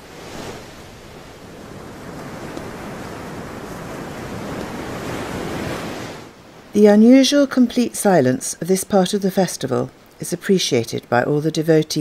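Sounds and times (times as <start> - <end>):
sea waves on sandy beach: 0.0 - 7.2.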